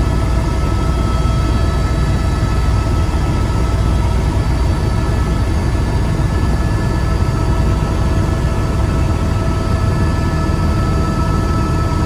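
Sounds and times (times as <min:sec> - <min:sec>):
helicopter cabin rumble: 0:00.0 - 0:12.0.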